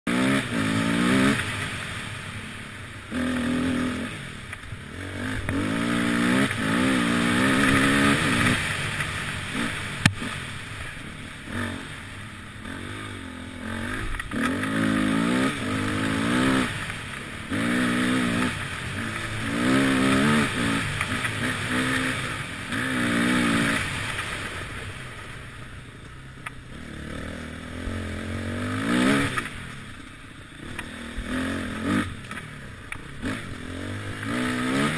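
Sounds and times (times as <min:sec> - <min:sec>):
motorcycle engine revving: 0:00.1 - 0:34.9.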